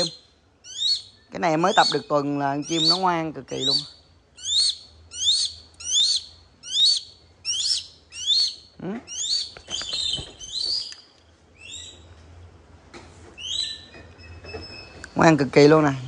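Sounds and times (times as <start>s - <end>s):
hawk calling: 0.0s - 11.0s.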